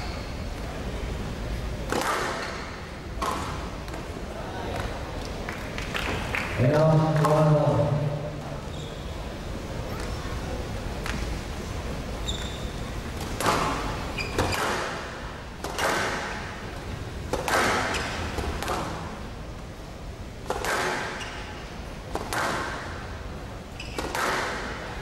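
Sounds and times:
shoes squeaking on court floor: 0.0 - 0.6, 2.3 - 2.9, 8.6 - 9.3, 12.2 - 14.9, 20.9 - 21.8, 23.7 - 24.5
squash ball hits echoing: 1.8 - 4.0, 13.2 - 16.6, 17.2 - 19.1, 20.4 - 21.4, 22.0 - 23.1, 23.9 - 24.9.

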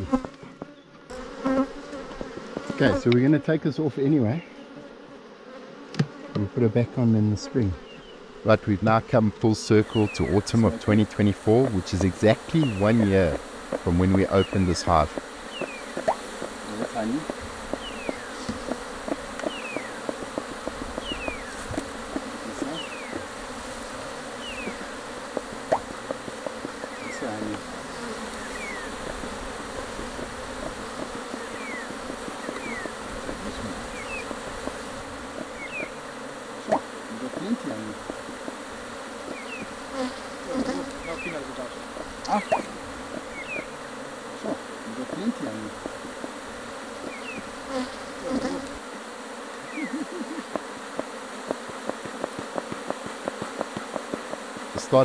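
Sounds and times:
bees buzzing: 0.0 - 55.0.

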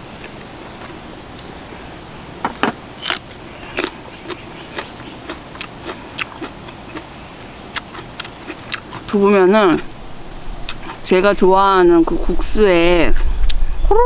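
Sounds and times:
loud bite crunches: 3.0 - 7.1, 7.7 - 9.1
crunchy chewing: 3.0 - 9.9, 10.6 - 11.0.

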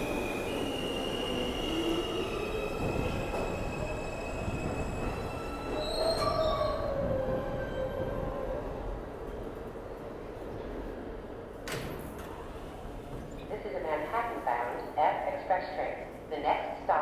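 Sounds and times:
train wheels squealing: 0.0 - 8.6
rumble of train cars: 0.0 - 17.0.

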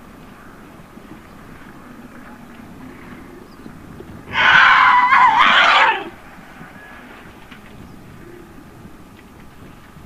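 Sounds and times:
faint outdoor background: 0.0 - 10.0
elephant screaming: 4.3 - 7.2.

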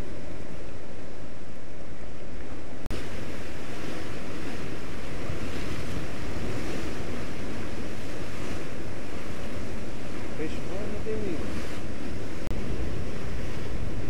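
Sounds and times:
wind buffeting microphone: 0.0 - 14.0
surf breaking on rocks: 2.9 - 14.0.

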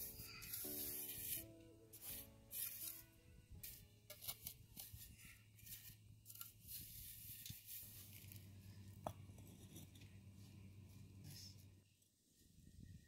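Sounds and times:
trowel scraping through sand: 0.0 - 8.4.

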